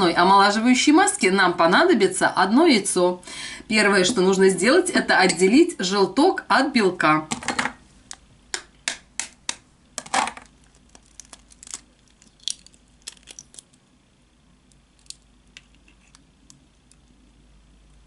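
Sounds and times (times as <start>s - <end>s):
eggshell crackling: 10.4s - 17.4s.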